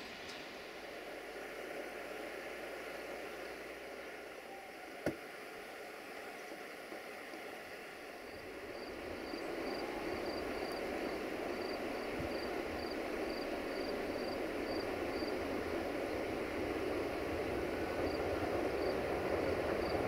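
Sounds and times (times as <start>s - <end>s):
high insect chirp: 7.8s - 20.0s.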